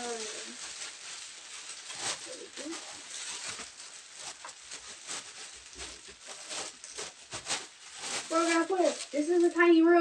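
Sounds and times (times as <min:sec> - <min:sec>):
plastic wrap crinkling: 0:00.0 - 0:10.0.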